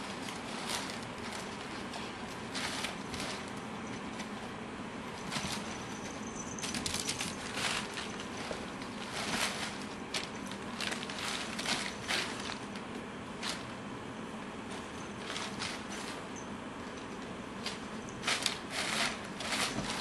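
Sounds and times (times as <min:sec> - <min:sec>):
packing paper rustling: 0:00.0 - 0:04.4, 0:05.2 - 0:13.7, 0:17.6 - 0:20.0.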